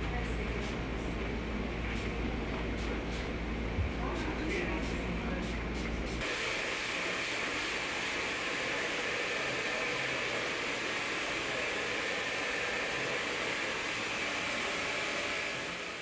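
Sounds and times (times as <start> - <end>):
hair dryer running: 6.2 - 16.0.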